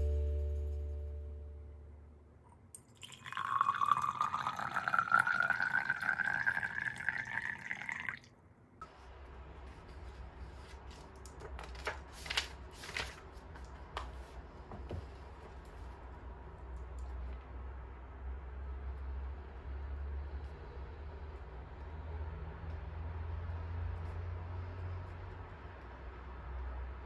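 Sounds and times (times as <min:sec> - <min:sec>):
low hum: 0:00.0 - 0:02.9
tea pouring into glass: 0:02.8 - 0:08.3.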